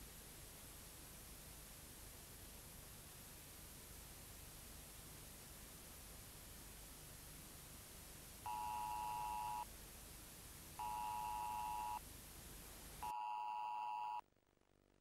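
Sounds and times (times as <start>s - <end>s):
tape hiss: 0.0s - 15.0s
long electronic beeps: 10.8s - 12.0s.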